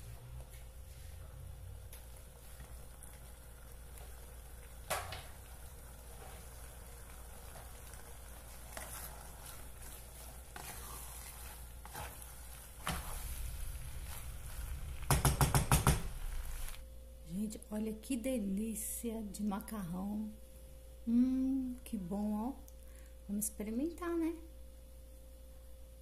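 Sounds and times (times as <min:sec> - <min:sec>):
wooden spoon stirring and scraping: 0:00.7 - 0:16.8
pasta sizzling in pot: 0:01.4 - 0:16.8
sharp knocks: 0:15.0 - 0:16.1.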